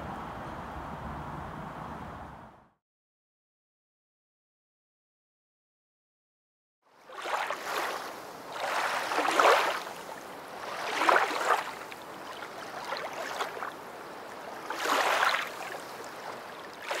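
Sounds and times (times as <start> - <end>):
washes of water: 7.0 - 17.0.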